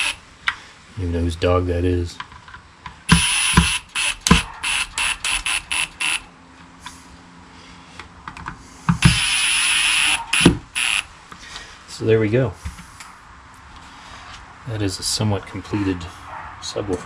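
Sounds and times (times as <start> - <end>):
impact driver hammering: 3.1 - 6.2, 8.9 - 11.0.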